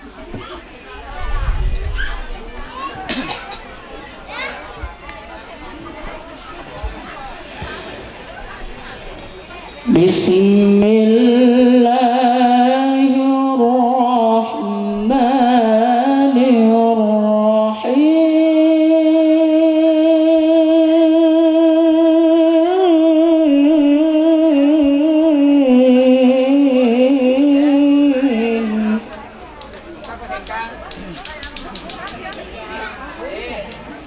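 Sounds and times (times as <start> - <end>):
man reciting melodically into microphone: 9.9 - 29.1.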